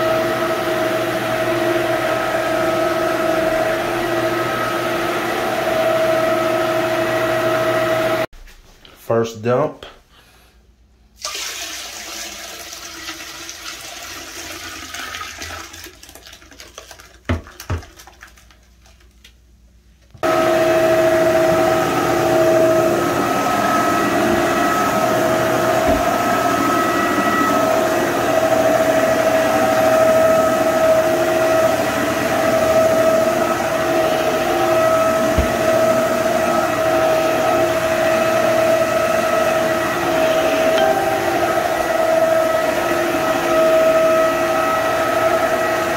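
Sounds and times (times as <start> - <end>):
floor scrubber whining: 0.0 - 8.3, 20.2 - 45.9
toilet flushing: 11.2 - 18.4.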